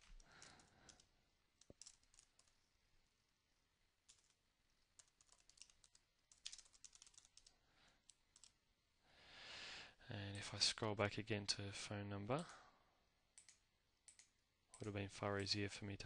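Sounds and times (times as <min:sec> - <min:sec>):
typing on keyboard: 0:00.0 - 0:02.6, 0:04.0 - 0:08.6, 0:13.4 - 0:15.6.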